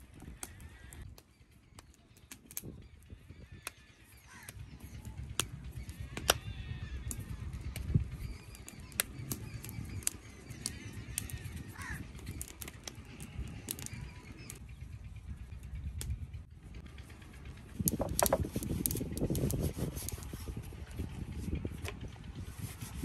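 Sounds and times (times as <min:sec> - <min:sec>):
birds chirping and calling: 0:00.1 - 0:15.6
low rumble: 0:13.0 - 0:23.0.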